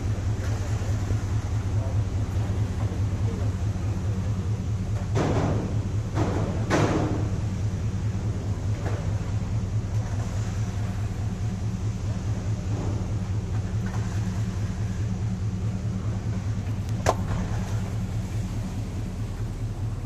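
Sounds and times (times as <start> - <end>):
engine idling: 0.0 - 20.0.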